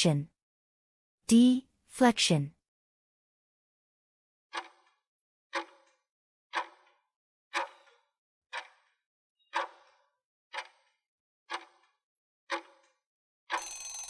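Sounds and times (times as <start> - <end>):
clock ticking: 4.6 - 4.9, 5.6 - 5.9, 6.5 - 6.9, 7.6 - 8.9, 9.6 - 9.9, 10.6 - 10.9, 11.5 - 11.8, 13.5 - 14.0.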